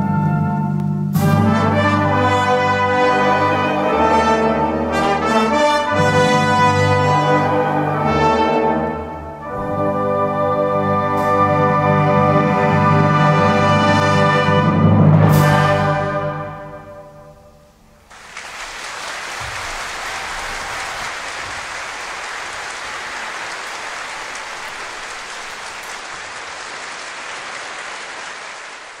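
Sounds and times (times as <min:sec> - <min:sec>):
audience applause: 0:18.1 - 0:29.0.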